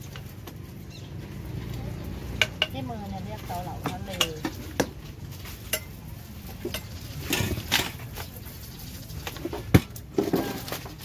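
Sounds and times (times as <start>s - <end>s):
kitchen utensils knocking and clinking: 2.2s - 8.3s.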